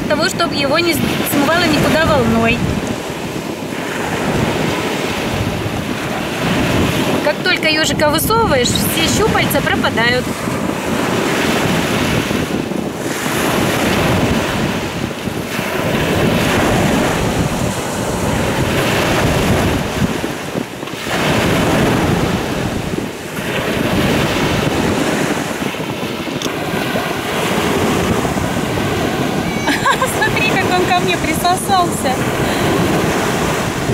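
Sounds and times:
wind buffeting the microphone: 0.0s - 33.9s
surf washing onto pebbles: 8.6s - 33.9s.

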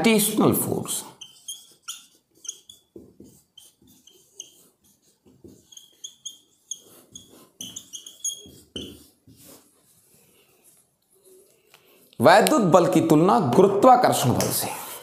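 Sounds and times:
squeaky pen strokes on a board: 0.2s - 11.4s
faint pen scratching: 1.1s - 12.0s.

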